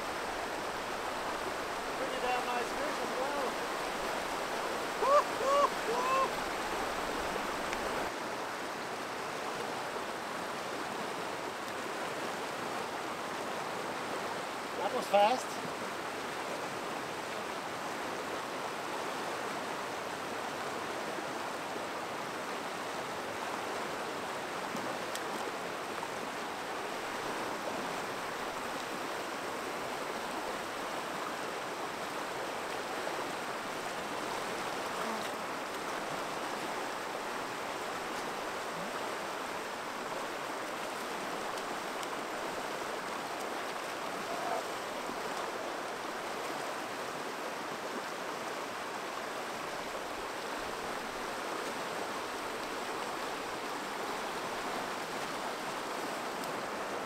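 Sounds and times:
river rushing over stones: 0:00.0 - 0:57.0.

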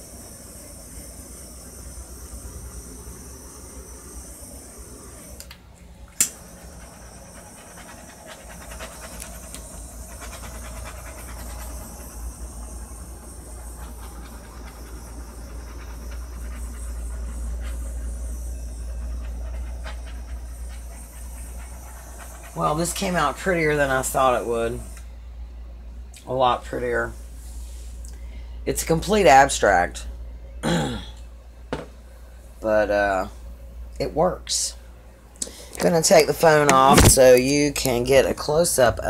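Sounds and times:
butane torch hissing: 0:00.0 - 0:25.1
sharp click: 0:06.2 - 0:06.4.

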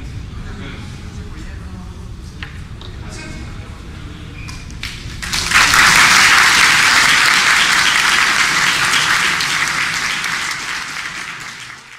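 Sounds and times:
audience applauding: 0:04.8 - 0:11.9.

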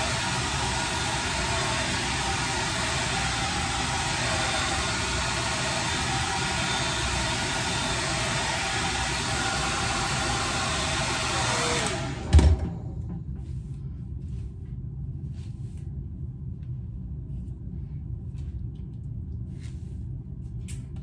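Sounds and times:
hair dryer blowing: 0:00.0 - 0:12.8.

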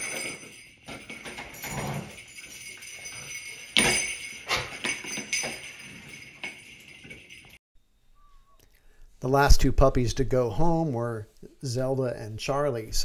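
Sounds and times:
metal jingle bells jingling: 0:00.0 - 0:07.6.

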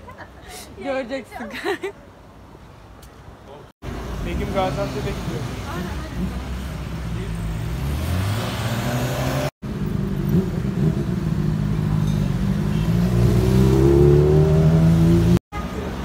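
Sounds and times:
motorcycle engines passing: 0:03.9 - 0:16.0
motorcycle engine revving: 0:07.6 - 0:15.4.

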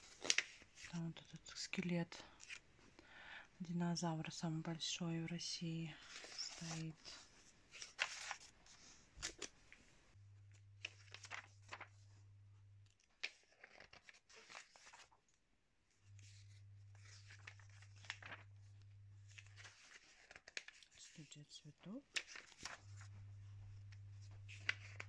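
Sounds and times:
magazine pages rustling: 0:00.0 - 0:00.9, 0:02.2 - 0:02.6, 0:06.0 - 0:09.8, 0:10.5 - 0:12.1, 0:13.0 - 0:15.2, 0:16.1 - 0:21.2, 0:21.8 - 0:25.0.

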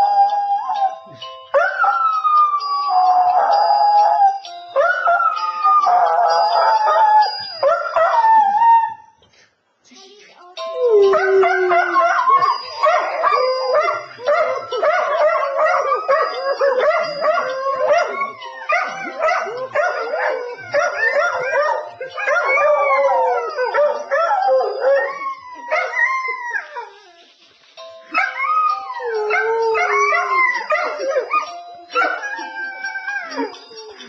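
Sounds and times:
dogs howling: 0:00.0 - 0:09.1, 0:10.8 - 0:27.2, 0:28.2 - 0:34.0
phone ringtone: 0:10.6 - 0:25.7, 0:27.8 - 0:34.0.

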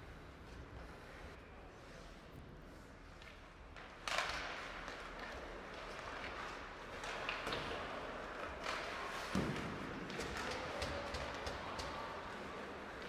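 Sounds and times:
hockey sticks and puck thuds: 0:03.0 - 0:13.0.

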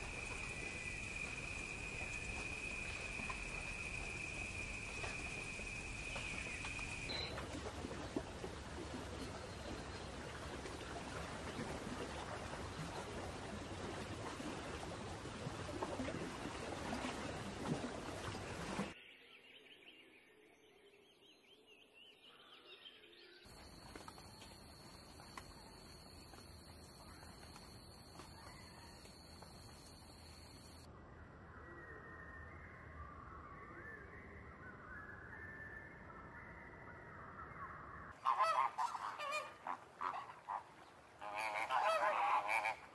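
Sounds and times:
faint steady hiss: 0:00.0 - 0:07.9
water rushing at shoreline: 0:00.0 - 0:19.0, 0:38.2 - 0:42.9
high twittering bird calls: 0:06.1 - 0:07.4
flamingos honking: 0:38.2 - 0:42.9.

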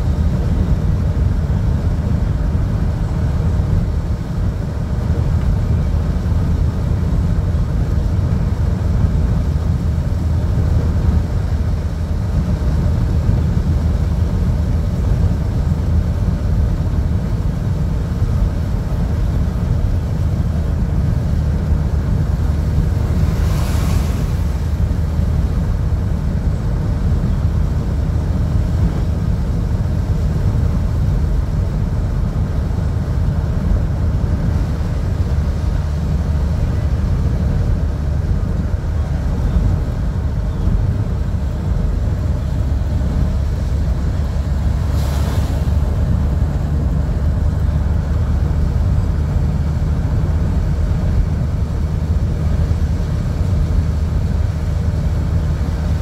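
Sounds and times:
car interior rumble: 0:00.0 - 0:56.0
tyres hissing on wet road: 0:00.0 - 0:56.0
brief swooshes: 0:23.2 - 0:24.8, 0:44.9 - 0:45.8.

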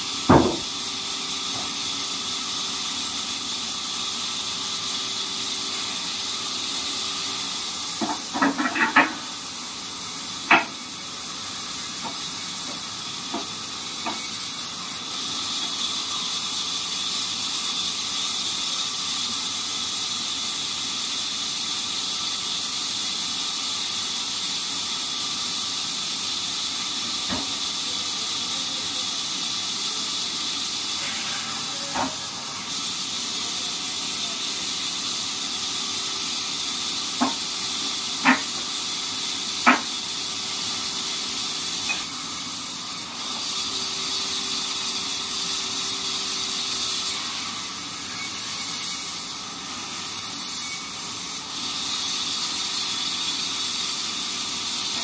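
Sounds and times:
log knocking on steel carriage: 0:00.3 - 0:00.7
steady high hiss: 0:27.8 - 0:37.2.

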